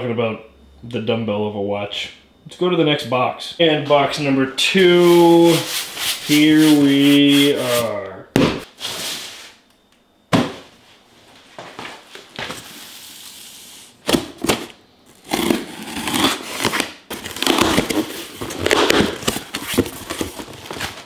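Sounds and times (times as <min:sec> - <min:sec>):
packaging crinkling and rustling: 0:14.4 - 0:21.0.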